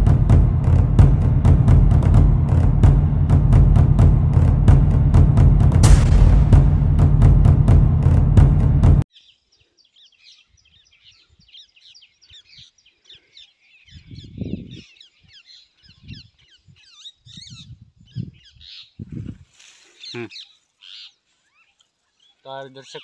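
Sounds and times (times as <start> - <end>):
intro music with drum hits: 0.0 - 9.0
thumps on microphone: 0.0 - 9.0
small birds chirping: 9.1 - 23.0.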